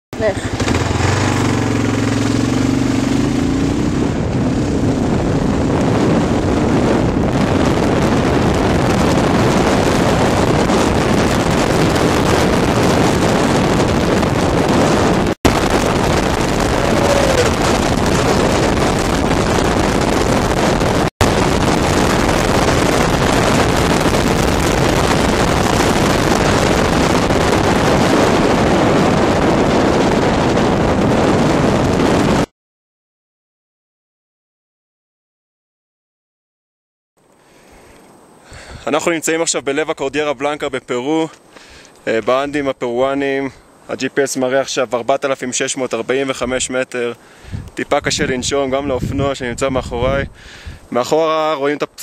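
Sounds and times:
motorcycle engine running: 0.2 - 32.5
wind buffeting microphone: 0.2 - 32.5, 47.3 - 51.0.

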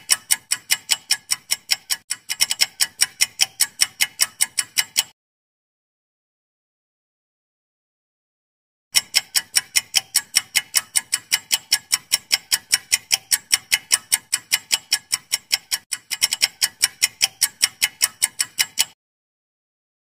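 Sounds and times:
clock ticking: 0.0 - 5.2, 8.9 - 19.0.

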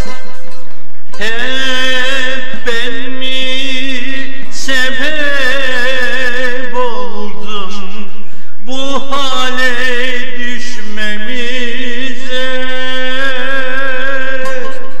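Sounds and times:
instrumental accompaniment: 0.0 - 3.2
man singing long wavering notes: 1.2 - 15.0.

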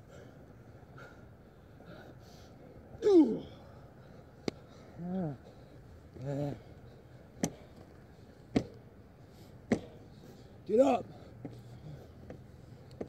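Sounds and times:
men grunting and yelling: 6.2 - 6.7.

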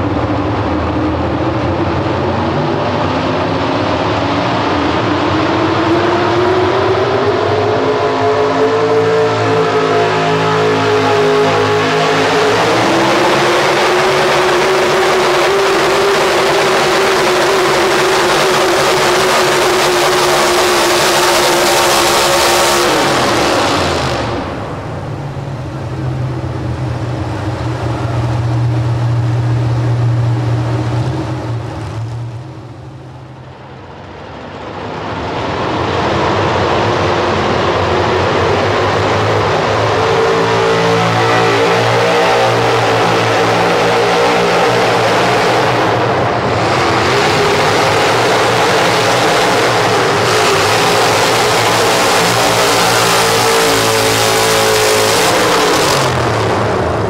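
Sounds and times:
another truck engine revving: 0.0 - 33.8, 34.8 - 57.0
pulling truck engine at high revs: 0.0 - 34.0, 34.6 - 57.0.

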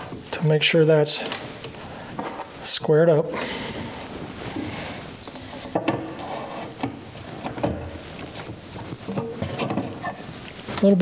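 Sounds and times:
light rubbing on wood: 4.0 - 7.0.

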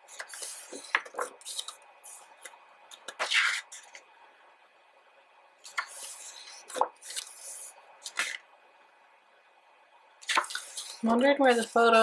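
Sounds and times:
book pages turning: 0.1 - 4.0, 5.6 - 8.4, 10.2 - 12.0.

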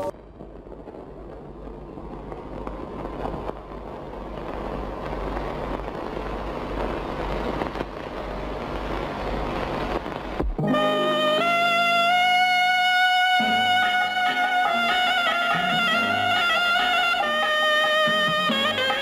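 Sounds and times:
low rumble: 0.0 - 10.7
steady rushing noise: 0.0 - 19.0.

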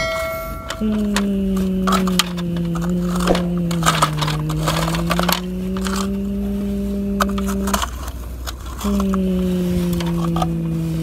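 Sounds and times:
steady droning tone: 0.8 - 7.8
toy excavator scraping dirt: 1.6 - 11.0.

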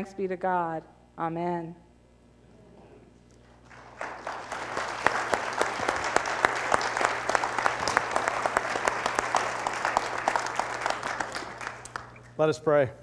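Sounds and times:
congregation applauding: 3.5 - 12.4.

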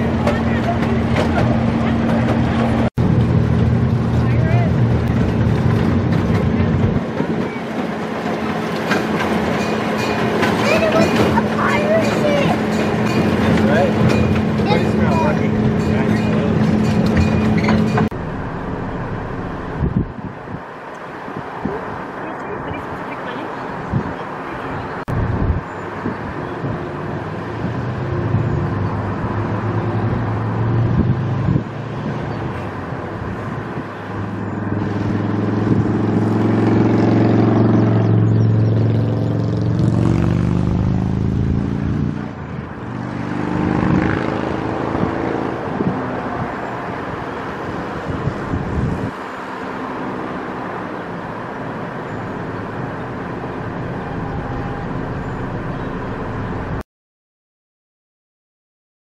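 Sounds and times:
vehicle engine passing by: 10.6 - 56.8
background rumble: 15.6 - 20.7.

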